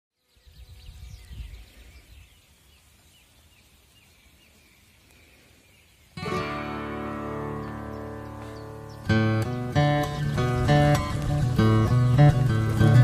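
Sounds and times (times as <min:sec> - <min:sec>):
birds chirping: 0:00.1 - 0:13.0
wind buffeting microphone: 0:00.4 - 0:02.5, 0:08.5 - 0:13.0
strummed acoustic guitar music: 0:06.2 - 0:13.0.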